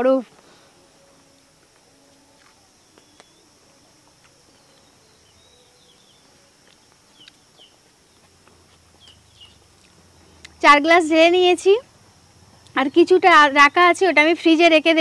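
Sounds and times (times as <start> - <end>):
high insect hum: 0.0 - 15.0
bird chirps: 9.0 - 9.7.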